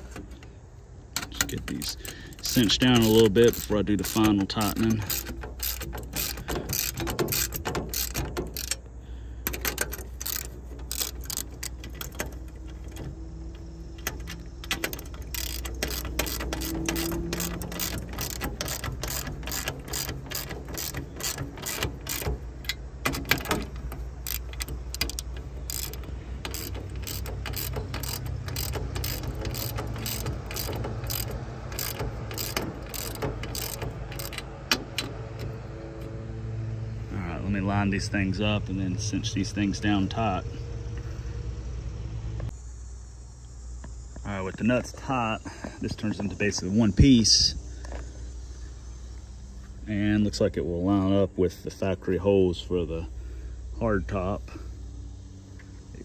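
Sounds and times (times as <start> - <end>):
ratchet wrench clicking: 1.2 - 35.5.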